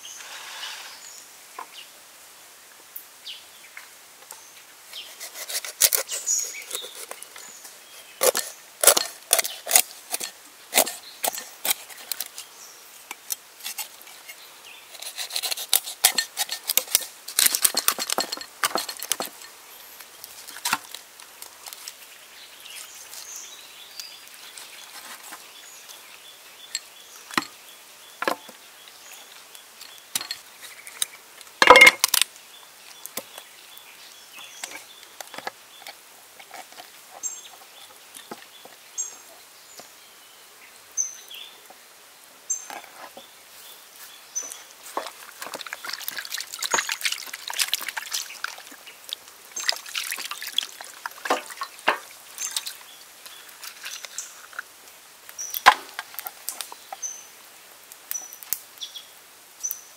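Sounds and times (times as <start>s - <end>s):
birds chirping: 3.2s - 9.8s, 36.6s - 41.8s, 42.5s - 47.3s, 47.9s - 54.6s, 55.4s - 57.4s
wet squishing and splashing: 45.2s - 51.8s.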